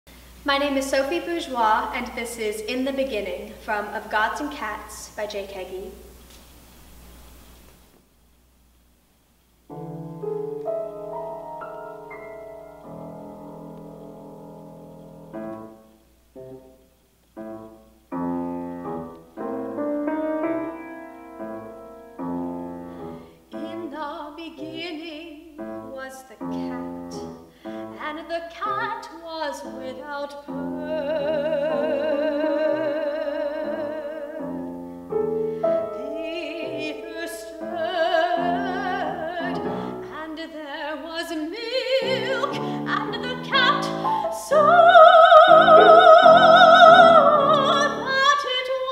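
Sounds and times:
grand piano chords: 0:09.7 - 0:48.8
soprano singing with vibrato: 0:23.5 - 0:34.8, 0:35.6 - 0:48.9.

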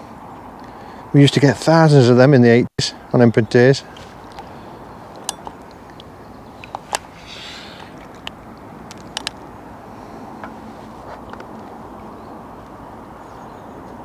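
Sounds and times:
outdoor background noise: 0:00.0 - 0:14.0
fishing tackle clicks and taps: 0:08.0 - 0:09.4.

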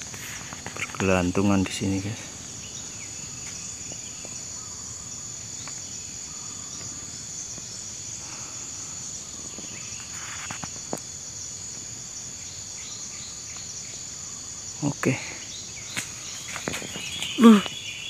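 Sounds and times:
insects droning: 0:00.0 - 0:18.0
brief rustle: 0:10.0 - 0:10.8.

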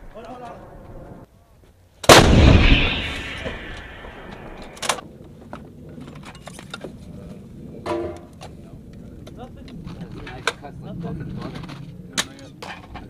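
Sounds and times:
howitzer blast: 0:02.1 - 0:05.0
sharp metal clank: 0:02.2 - 0:04.9.

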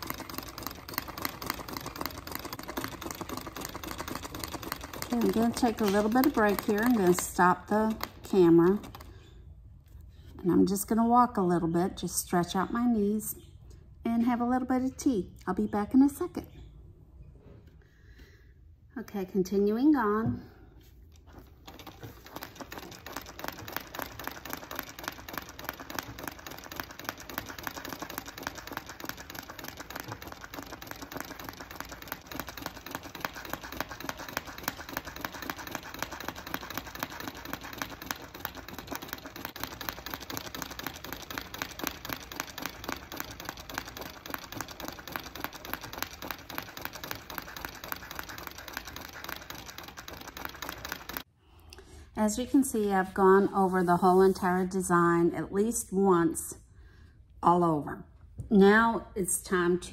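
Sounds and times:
sewing machine needle clatter: 0:00.0 - 0:09.1, 0:21.6 - 0:51.2.

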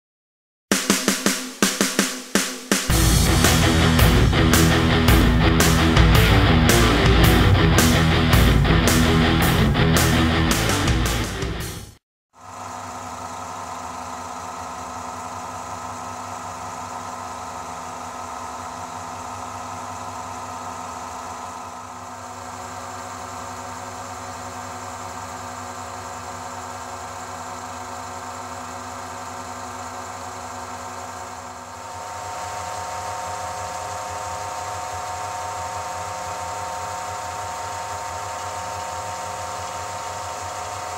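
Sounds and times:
lathe motor humming: 0:02.9 - 0:11.5, 0:12.4 - 0:40.9.

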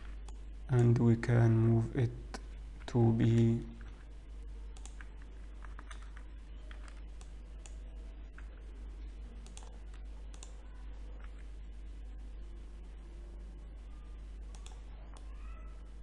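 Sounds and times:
low electrical hum: 0:00.0 - 0:16.0
keyboard and mouse clicking: 0:04.8 - 0:08.5, 0:09.4 - 0:10.6, 0:14.5 - 0:15.3.

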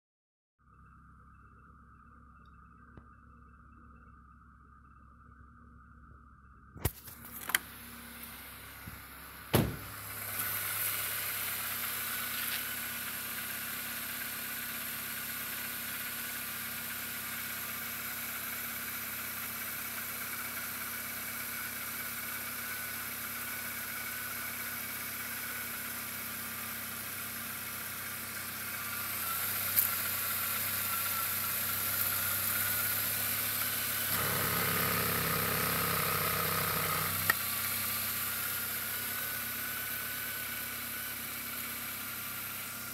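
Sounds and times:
car engine idling: 0:00.7 - 0:42.9
sharp knock: 0:09.6 - 0:10.0.

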